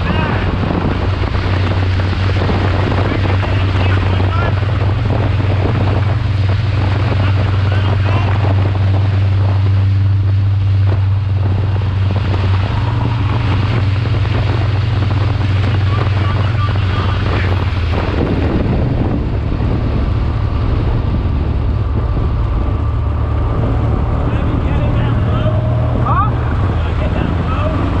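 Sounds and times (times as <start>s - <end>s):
race car engine at speed: 0.0s - 28.0s
wind buffeting microphone: 0.0s - 28.0s.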